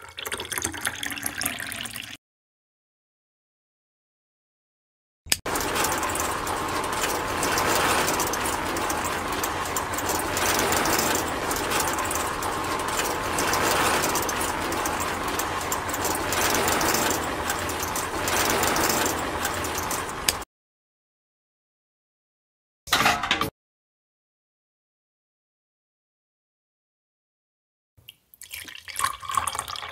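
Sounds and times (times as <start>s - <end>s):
small electric motor and gears: 5.5s - 20.4s.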